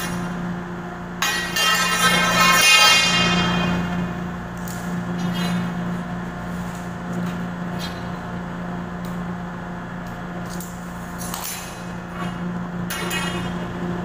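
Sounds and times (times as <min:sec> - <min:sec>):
metal conduit clinking and scraping: 0:01.2 - 0:04.0, 0:11.4 - 0:13.6.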